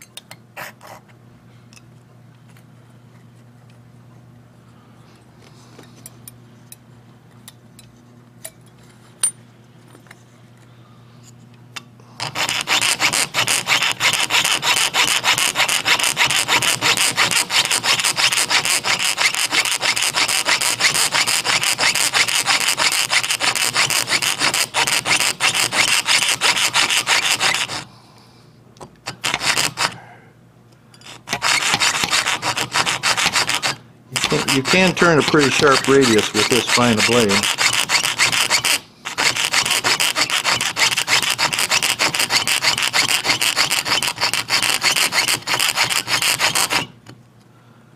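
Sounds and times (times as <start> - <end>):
fine saw cutting metal: 12.2 - 27.9, 29.1 - 30.0, 31.0 - 47.0.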